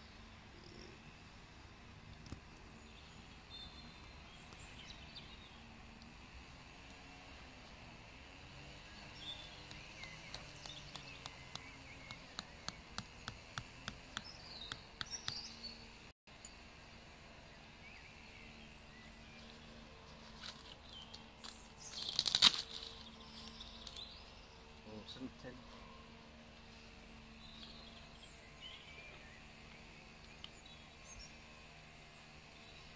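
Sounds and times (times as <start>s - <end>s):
birds chirping faintly: 0.0s - 16.6s
rustle: 17.9s - 31.4s.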